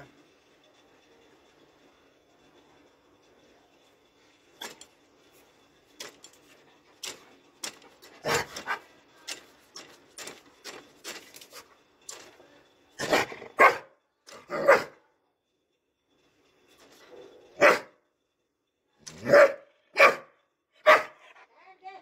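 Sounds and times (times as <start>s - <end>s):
dog barking: 13.6s - 13.9s, 14.6s - 14.9s, 17.6s - 17.9s, 19.2s - 21.2s.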